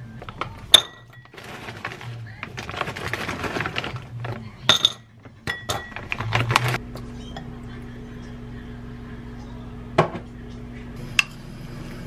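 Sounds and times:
plastic bag rustling: 0:00.0 - 0:06.8
frozen pieces clinking on bowl: 0:00.2 - 0:06.8
steady low hum: 0:04.0 - 0:12.0.

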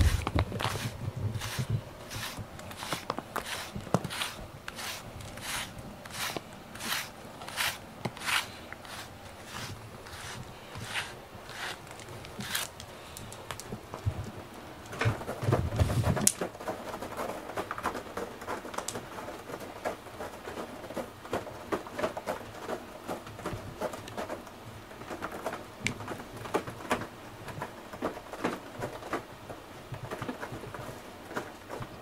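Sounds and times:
cat scratching cardboard: 0:00.0 - 0:12.9.

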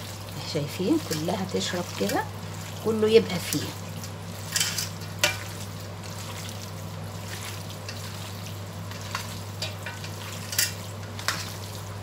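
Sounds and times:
steady low hum: 0:00.0 - 0:12.0
hands squelching wet chicken: 0:05.4 - 0:09.4.

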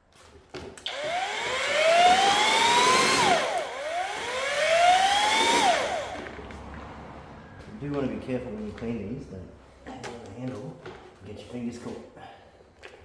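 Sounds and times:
electric mixer motor winding up: 0:00.8 - 0:06.6.

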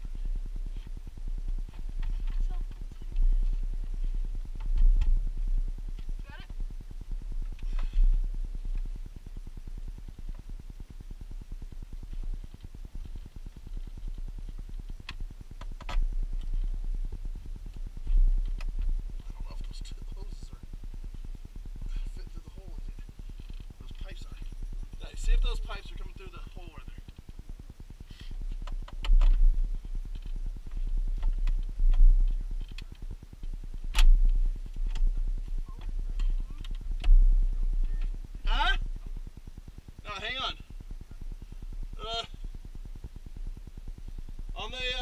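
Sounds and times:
low rapid pulsing rumble: 0:00.0 - 0:45.0
fast even ticking: 0:08.4 - 0:45.0.

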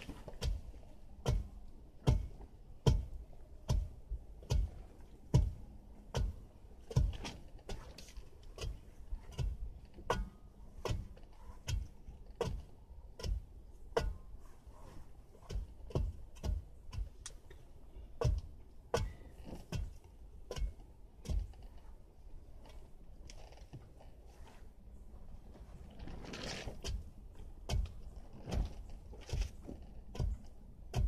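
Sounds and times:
digging tool thudding into soil: 0:01.2 - 0:03.1, 0:03.7 - 0:03.9, 0:05.3 - 0:07.8, 0:08.6 - 0:11.8, 0:18.2 - 0:19.9.

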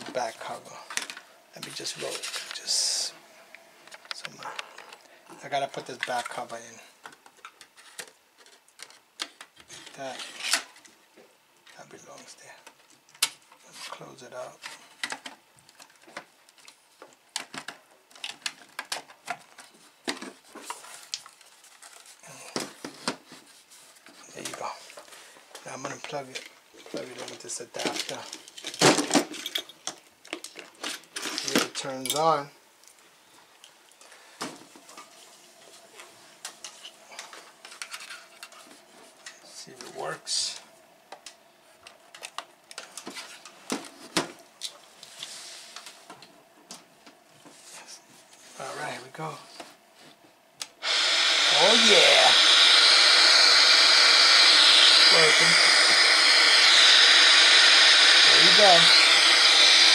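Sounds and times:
short hiss: 0:50.8 - 0:59.9.

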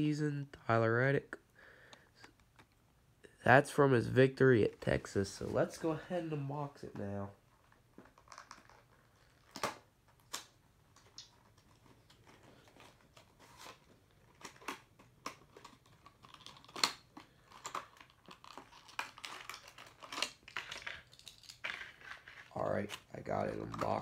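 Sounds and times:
packaging being opened: 0:07.7 - 0:24.0
plastic rustling: 0:10.8 - 0:24.0.

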